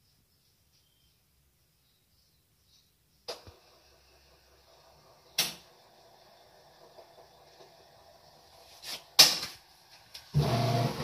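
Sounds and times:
washing machine churning: 3.3 - 11.0
washing machine hum: 3.3 - 11.0.

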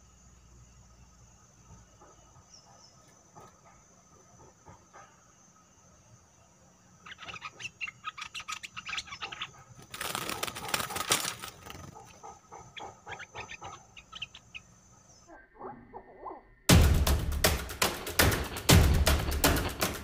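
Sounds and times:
bulbuls chattering calls: 7.0 - 16.4
bird wings flapping: 9.7 - 12.3.

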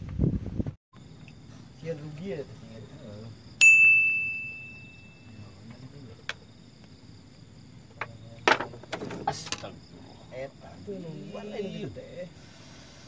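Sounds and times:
small metal bell ringing: 3.6 - 5.6.

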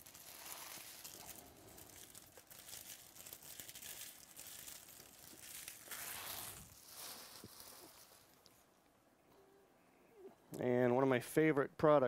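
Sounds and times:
wrappers crinkling: 0.0 - 8.7.

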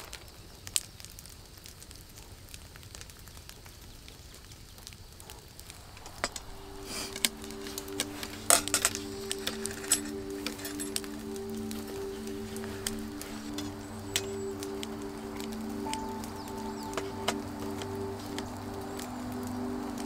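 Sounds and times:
background music: 5.8 - 20.0.

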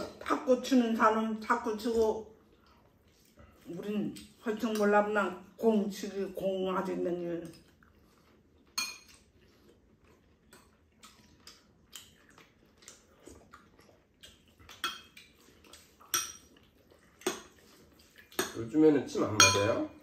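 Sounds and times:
spoons clinking on ceramic bowls: 8.8 - 9.1, 14.8 - 15.2, 16.1 - 16.5, 19.3 - 19.9.

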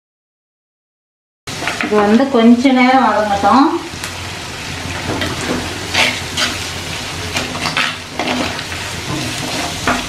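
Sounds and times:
onions sizzling in oil: 1.5 - 10.0
metal spoon scraping pot: 5.2 - 6.7.

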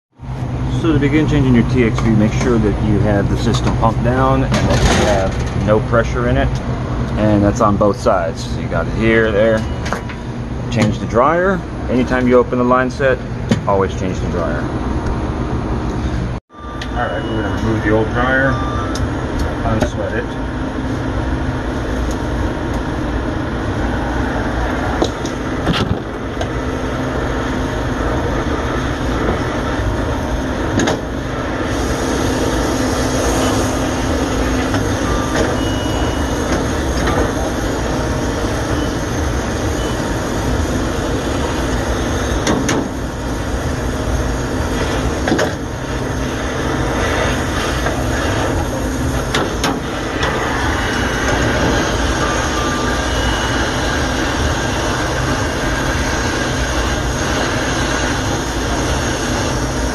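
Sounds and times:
low hum: 0.2 - 59.9
torch flame hissing: 23.8 - 59.9.

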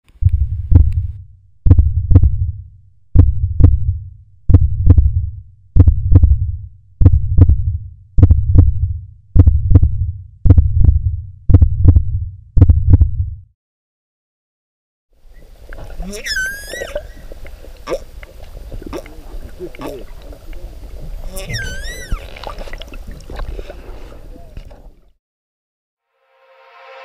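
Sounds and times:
heartbeat thumps: 0.2 - 13.5.

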